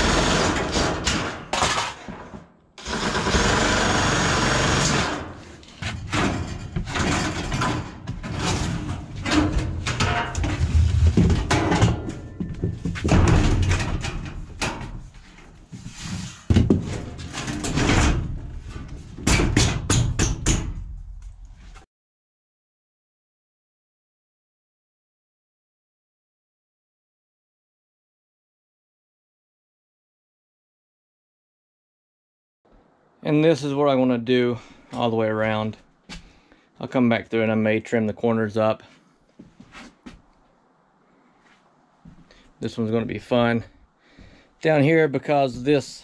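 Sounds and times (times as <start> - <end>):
power shear cutting sheet metal: 0.0 - 1.4, 2.8 - 5.6
metal panels banging and rattling: 0.3 - 2.5, 5.1 - 15.2, 16.4 - 21.2.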